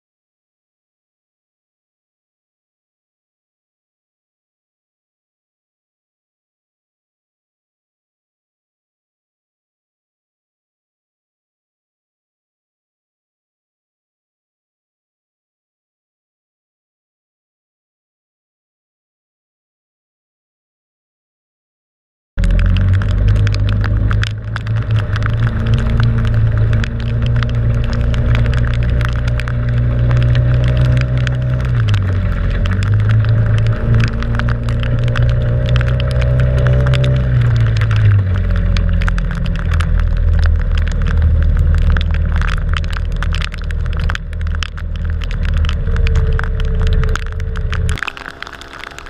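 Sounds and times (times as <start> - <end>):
motorboat engine running: 22.4 - 49.0
rain pattering on camera: 22.4 - 49.0.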